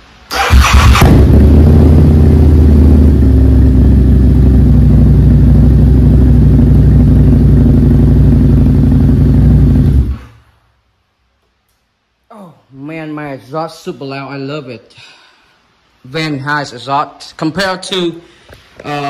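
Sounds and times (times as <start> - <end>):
motorcycle engine idling loudly: 0.9 - 10.1.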